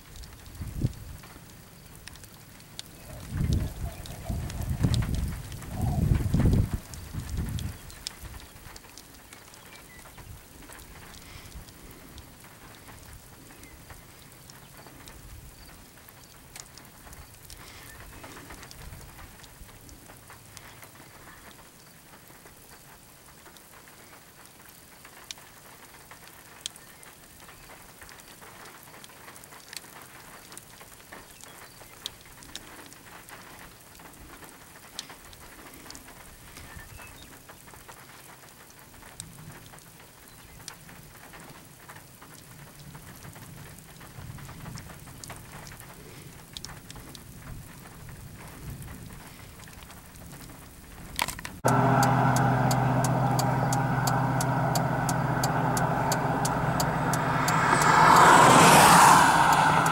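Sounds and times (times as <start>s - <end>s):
raindrops ticking: 0.0s - 36.1s, 49.7s - 59.9s
soft rain hiss: 0.0s - 59.9s
low rumble: 51.6s - 59.9s.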